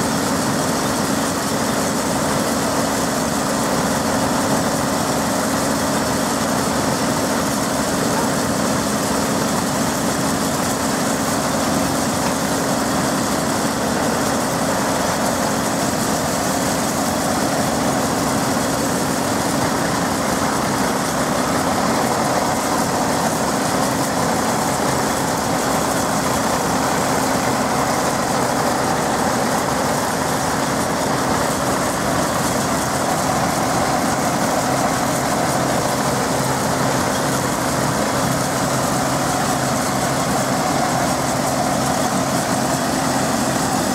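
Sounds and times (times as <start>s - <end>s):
diesel tractor engine running: 0.0s - 43.9s.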